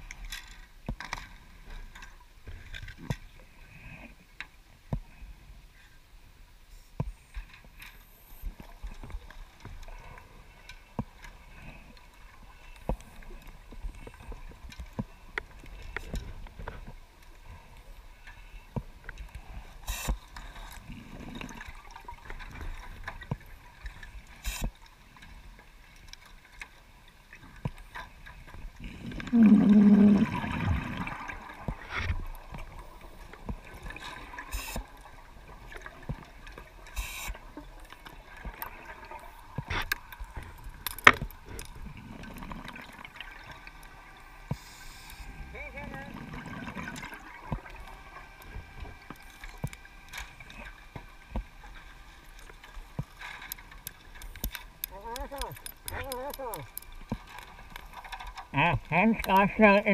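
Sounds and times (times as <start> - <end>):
low hiss: 23.7 - 40.9, 41.8 - 59.9
gurgling gas bubbles: 28.8 - 31.8
sharp underwater clicks: 35.7 - 43.9, 52.3 - 58.6.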